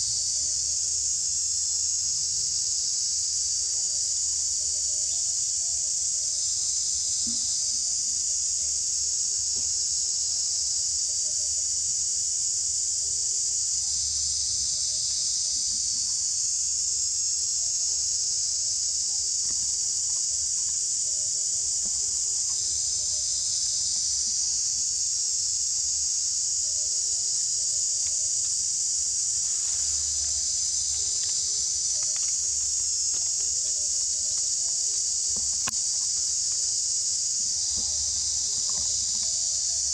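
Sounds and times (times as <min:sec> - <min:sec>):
insects shrilling in chorus: 0:12.7 - 0:39.9.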